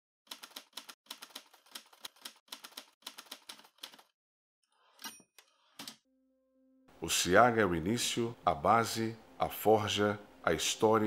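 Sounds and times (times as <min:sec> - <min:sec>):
typewriter keys clacking: 0:00.3 - 0:04.1
typewriter bell ding: 0:05.0 - 0:05.4.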